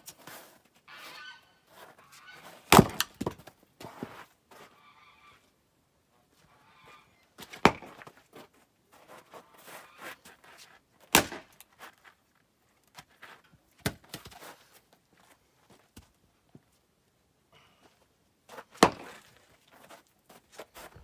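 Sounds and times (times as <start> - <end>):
axe splitting firewood: 2.7 - 3.5, 7.5 - 8.2, 11.1 - 11.6, 18.7 - 19.4.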